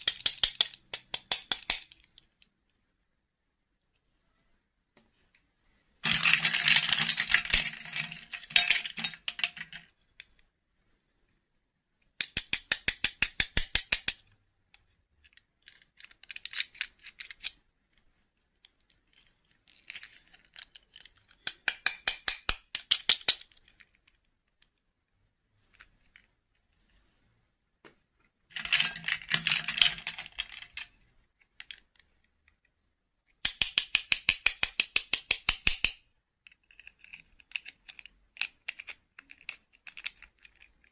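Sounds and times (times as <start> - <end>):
plastic dolls clattering: 6.0 - 10.3, 28.5 - 32.5.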